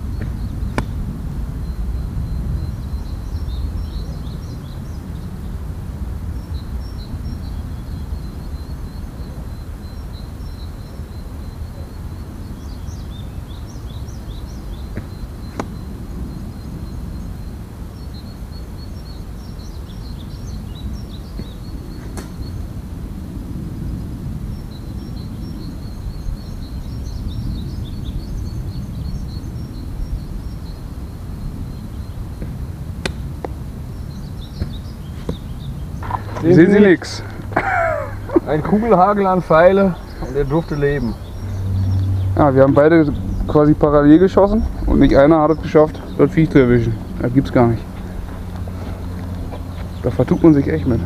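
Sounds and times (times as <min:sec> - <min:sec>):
small bird chirping: 0:00.0 - 0:05.6, 0:06.3 - 0:22.8, 0:23.8 - 0:51.0
low outdoor rumble: 0:00.0 - 0:51.0
low rumble: 0:32.3 - 0:51.0.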